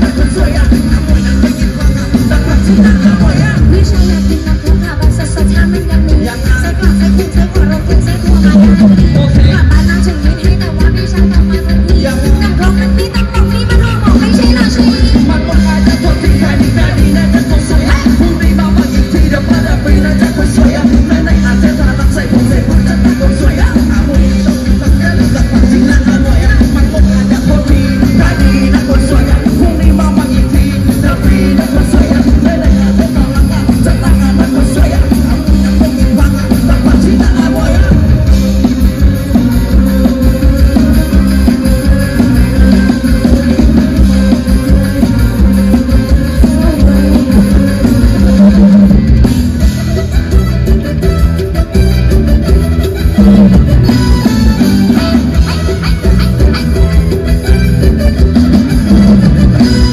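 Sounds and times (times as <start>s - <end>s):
live pop-rock band music: 0.0s - 59.9s.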